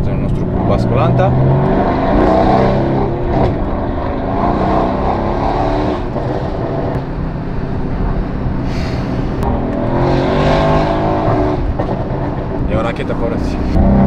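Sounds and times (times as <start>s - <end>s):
loud car engine running: 0.0s - 14.0s.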